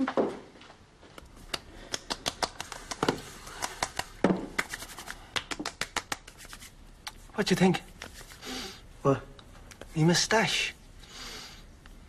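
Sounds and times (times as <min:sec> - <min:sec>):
hands slapping skin: 0:01.2 - 0:07.2.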